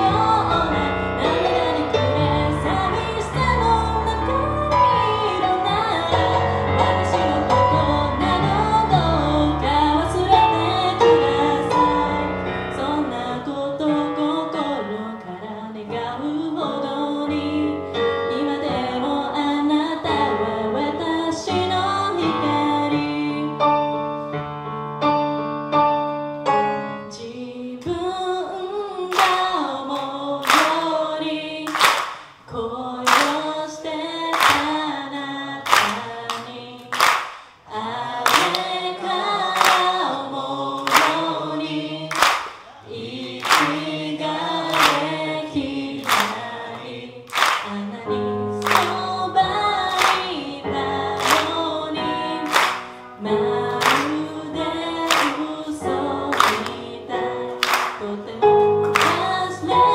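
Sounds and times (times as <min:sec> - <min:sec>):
woman singing pop song: 0:00.0 - 0:23.7, 0:27.1 - 0:37.0, 0:37.6 - 0:42.2, 0:42.8 - 0:59.9
electric piano chords: 0:00.0 - 0:28.0, 0:38.2 - 0:42.4, 0:43.0 - 0:59.9
handclaps: 0:29.1 - 0:30.9, 0:31.7 - 0:32.5, 0:33.1 - 0:33.5, 0:34.3 - 0:34.8, 0:35.7 - 0:37.6, 0:38.3 - 0:38.7, 0:39.6 - 0:40.1, 0:40.8 - 0:41.3, 0:42.1 - 0:42.7, 0:43.4 - 0:43.9, 0:44.7 - 0:45.1, 0:46.0 - 0:46.5, 0:47.3 - 0:47.8, 0:48.6 - 0:49.1, 0:49.9 - 0:50.4, 0:51.2 - 0:51.6, 0:52.4 - 0:53.0, 0:53.8 - 0:54.2, 0:55.1 - 0:55.5, 0:56.3 - 0:56.8, 0:57.6 - 0:58.2, 0:58.8 - 0:59.4.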